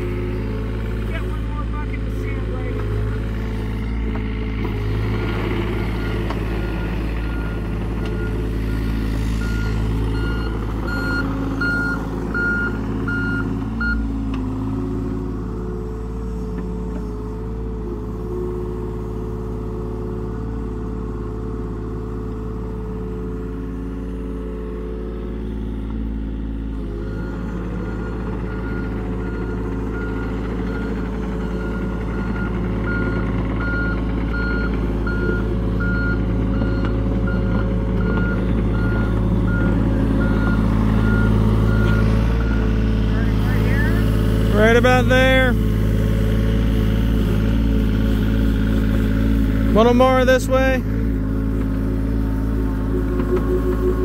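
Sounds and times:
excavator diesel engine running: 0:00.0 - 0:54.0
reversing alarm beeps: 0:09.4 - 0:14.0, 0:27.0 - 0:42.8, 0:52.6 - 0:54.0.

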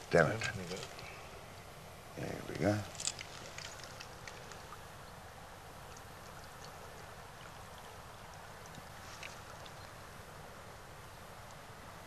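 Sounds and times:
shallow stream flowing: 0:00.0 - 0:12.0
water splashes and drips: 0:02.8 - 0:05.0, 0:05.8 - 0:09.9.

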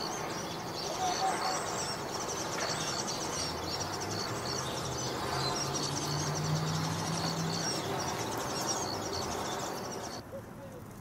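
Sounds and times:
birds chirping: 0:00.0 - 0:10.9
outdoor background noise: 0:00.0 - 0:11.0.

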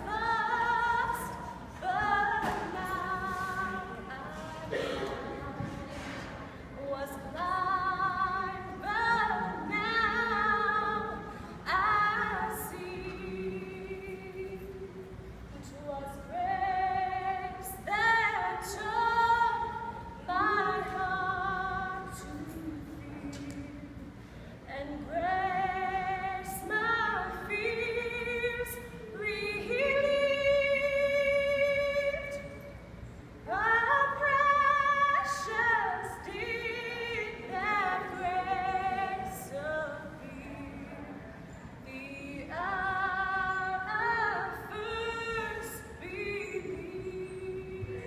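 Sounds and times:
woman singing with vibrato: 0:00.0 - 0:48.0.

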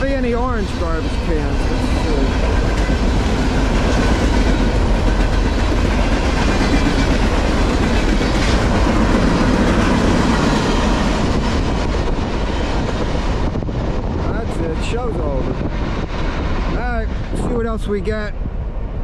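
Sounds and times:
train wheels clickety-clack: 0:00.0 - 0:14.3
freight train wheels rumbling: 0:00.0 - 0:19.0.

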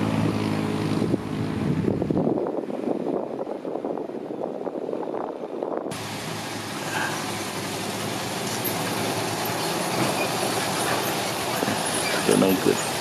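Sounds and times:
truck engine rumble: 0:00.0 - 0:13.0.

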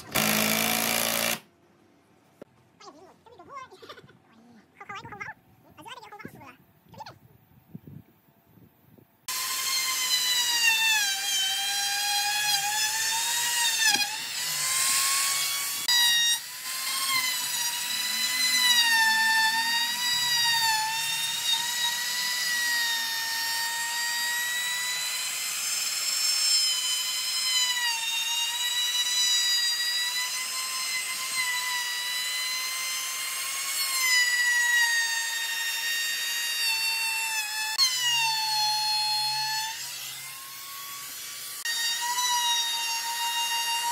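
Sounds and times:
trim router whining: 0:00.0 - 0:01.4, 0:09.3 - 0:43.9.

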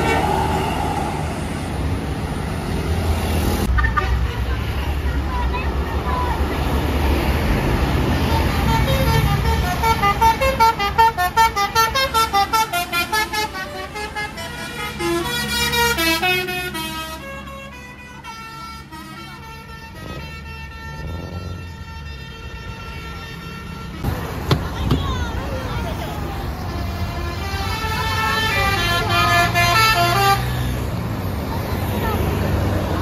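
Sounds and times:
bus engine rumble: 0:00.0 - 0:33.0
musical bus horn playing a tune: 0:08.2 - 0:24.1, 0:26.5 - 0:30.9.

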